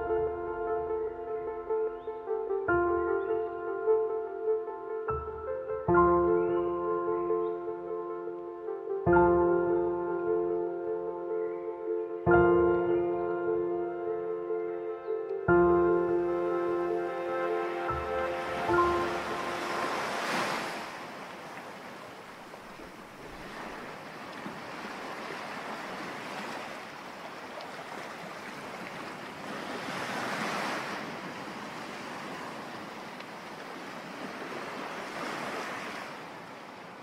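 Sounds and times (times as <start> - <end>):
sea waves washing in: 16.0 - 37.0.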